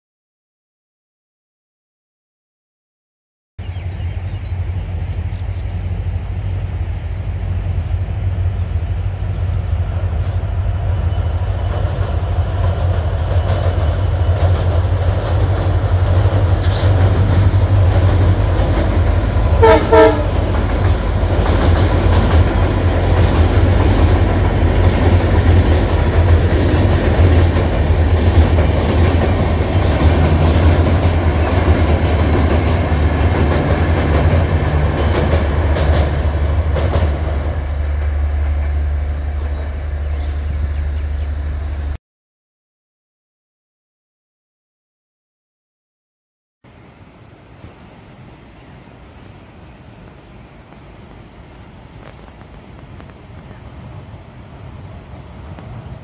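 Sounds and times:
deep locomotive engine rumble: 3.6 - 42.0, 46.7 - 56.0
train horn blasts: 19.5 - 20.5.

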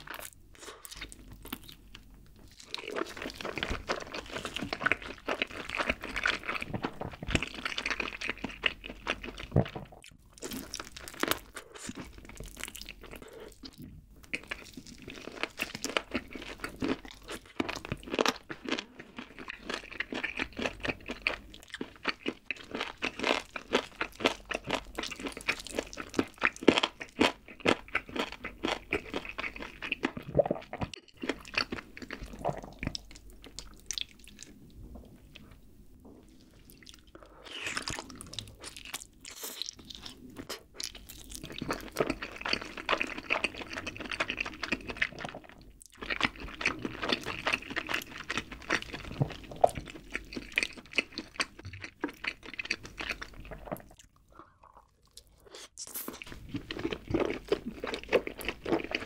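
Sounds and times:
chewing with crunching: 0.0 - 35.6, 36.2 - 59.0.

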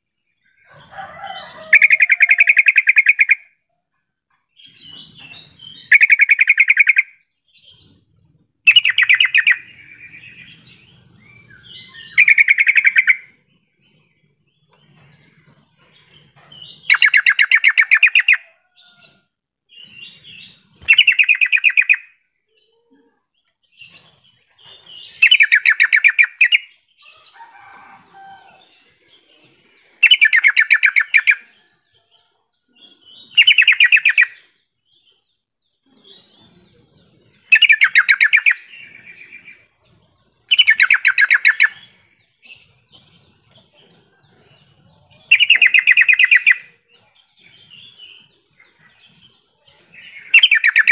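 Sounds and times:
bird calling bubbly phrases: 1.8 - 3.4.

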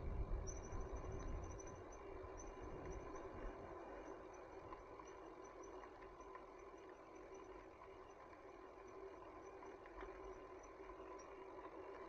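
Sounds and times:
wind rumble on microphone: 0.0 - 3.7.

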